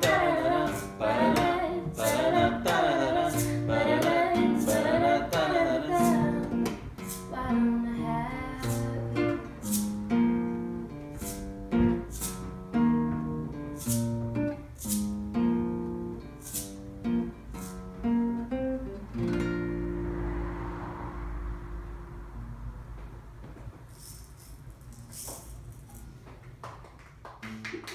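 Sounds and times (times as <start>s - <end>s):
woman singing: 0.0s - 9.4s
acoustic guitar picking: 0.0s - 20.5s.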